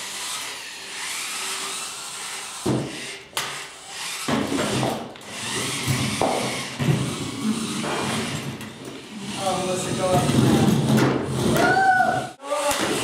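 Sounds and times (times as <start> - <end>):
electric motors whirring in bursts: 0.0 - 10.7
wheels rolling on plywood: 3.6 - 13.0.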